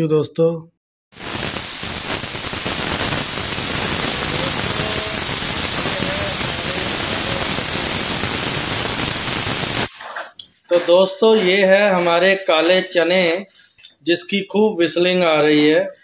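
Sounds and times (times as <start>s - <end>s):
pressure cooker whistling: 1.2s - 9.9s.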